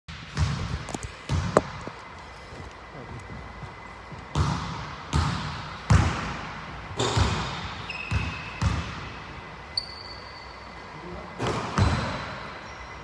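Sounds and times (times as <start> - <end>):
basketball bouncing on wooden floor: 0.3 - 2.0, 4.3 - 6.4, 7.0 - 9.0, 11.5 - 12.2
sneaker squeaks: 7.0 - 13.0.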